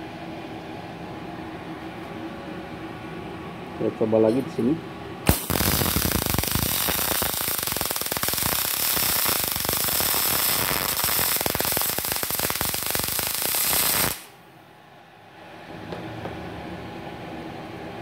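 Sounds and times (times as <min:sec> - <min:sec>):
welding arc crackling: 0:05.3 - 0:14.3.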